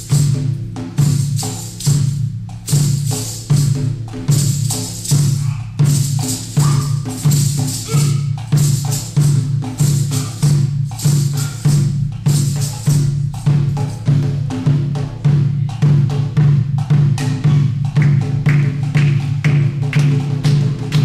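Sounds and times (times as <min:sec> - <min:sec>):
bright rattle: 0:00.0 - 0:14.1
barrel drum struck with sticks: 0:00.0 - 0:21.0
frame drum beating: 0:00.0 - 0:21.0.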